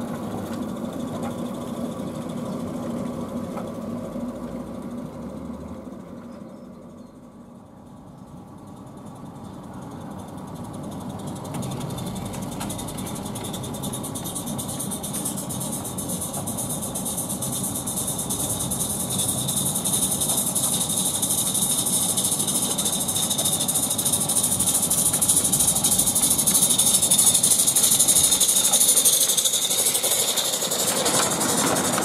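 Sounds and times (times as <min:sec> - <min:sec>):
steam locomotive exhaust hiss: 0:07.4 - 0:32.0.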